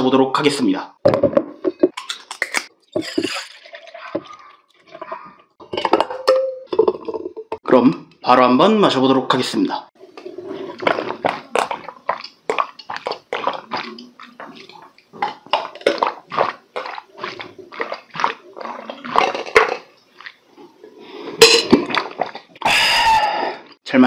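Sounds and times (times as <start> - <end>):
person gulping a drink: 10.1 - 23.8.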